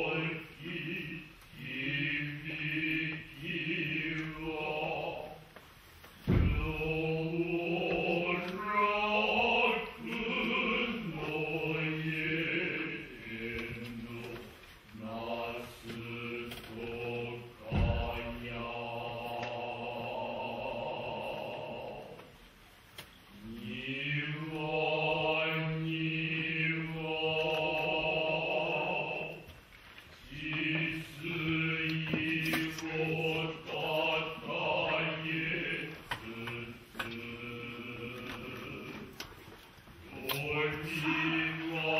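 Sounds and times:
male chorus chanting: 0.0s - 5.5s, 6.3s - 22.3s, 23.4s - 29.6s, 30.2s - 39.2s, 40.0s - 41.9s.

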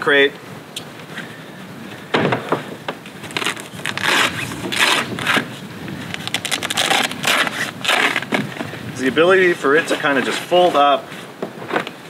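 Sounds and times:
fabric crate being folded: 3.2s - 5.5s, 6.1s - 12.0s.

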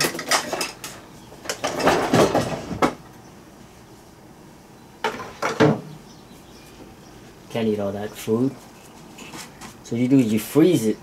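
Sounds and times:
kitchen items clattering: 0.0s - 2.9s.

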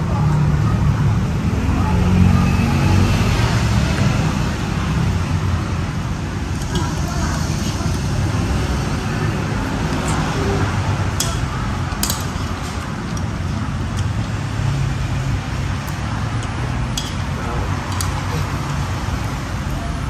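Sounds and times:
road traffic rumble: 0.0s - 20.0s
cutlery clinking on plastic bowls: 6.5s - 8.7s, 9.7s - 14.4s, 15.8s - 18.9s.

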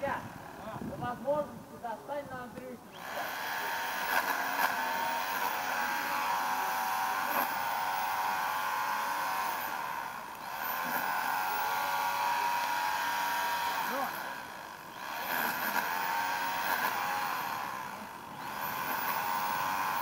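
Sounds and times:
electric power tool motor whine: 2.9s - 20.0s.

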